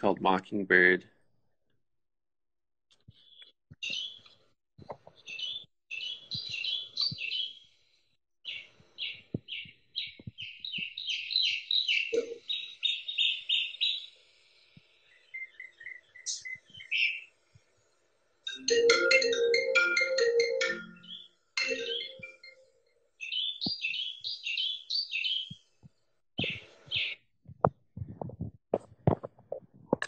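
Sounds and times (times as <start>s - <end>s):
recorded bird song from a speaker: 2.9s - 29.2s
phone ringtone: 18.5s - 22.7s.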